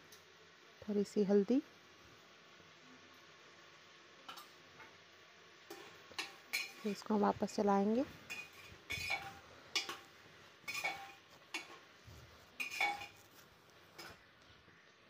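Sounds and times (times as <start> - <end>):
metal spoon clinking in pot: 8.3 - 10.0, 10.7 - 11.8, 12.6 - 13.2.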